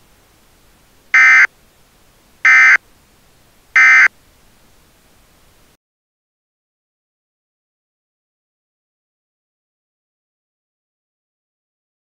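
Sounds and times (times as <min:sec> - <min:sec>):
buzzy digital chirps: 0:01.2 - 0:01.5.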